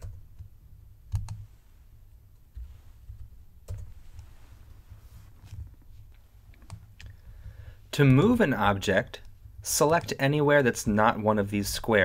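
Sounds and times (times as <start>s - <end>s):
low steady hum: 0.0s - 12.0s
computer keyboard keystrokes: 1.1s - 1.4s, 3.1s - 3.9s.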